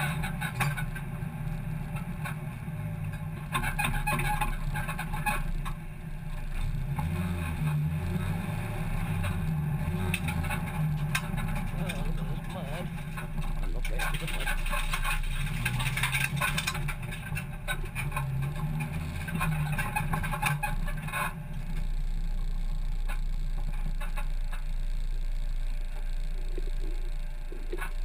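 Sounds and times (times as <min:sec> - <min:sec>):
car engine at low revs: 0:00.0 - 0:28.0
clicks and rattles: 0:09.1 - 0:21.9.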